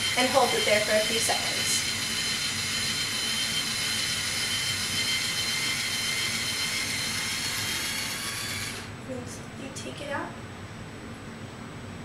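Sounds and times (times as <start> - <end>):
hair iron motor whirring: 0.0 - 8.9.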